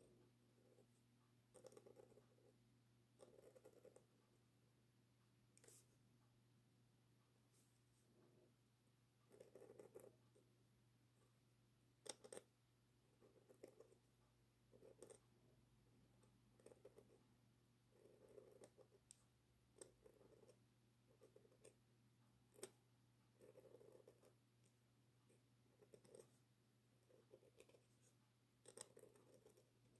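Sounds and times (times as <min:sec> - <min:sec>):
pen nib scratching paper: 0:00.0 - 0:02.5, 0:03.2 - 0:04.1, 0:05.6 - 0:05.9, 0:09.3 - 0:10.4, 0:12.0 - 0:12.5, 0:13.1 - 0:14.0, 0:14.7 - 0:15.2, 0:16.5 - 0:17.3, 0:17.9 - 0:21.8, 0:22.5 - 0:24.4, 0:25.2 - 0:26.4, 0:27.0 - 0:29.9
pen nib ticking on paper: 0:01.5 - 0:02.4, 0:12.0 - 0:12.5, 0:14.7 - 0:15.2, 0:17.9 - 0:21.8, 0:27.1 - 0:29.7.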